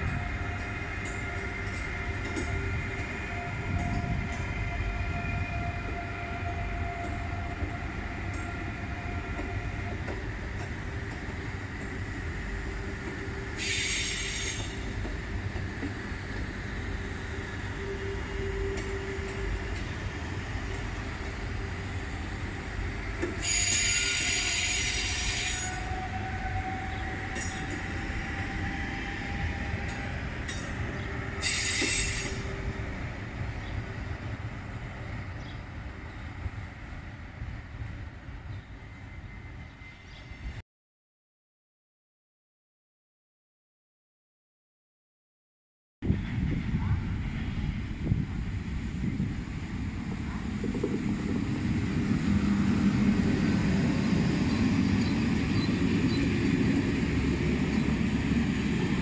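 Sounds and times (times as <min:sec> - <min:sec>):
train wheels rumbling on rail: 0:00.0 - 0:40.6, 0:46.0 - 0:59.0
train wheels squealing: 0:12.8 - 0:15.4, 0:22.6 - 0:34.4, 0:37.6 - 0:40.6, 0:52.0 - 0:58.1.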